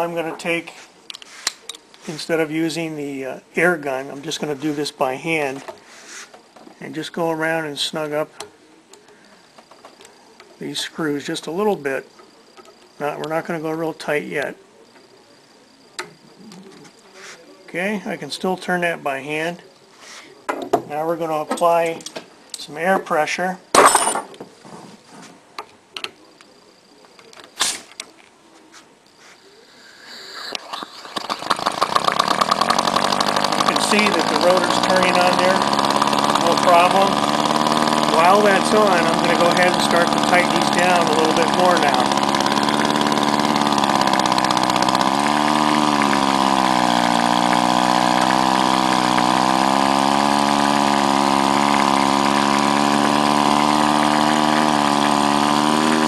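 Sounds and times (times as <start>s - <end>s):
compressed air hiss: 0.6s - 2.5s, 5.6s - 6.4s, 27.6s - 28.0s, 29.2s - 35.8s
air motor chattering: 30.6s - 56.0s.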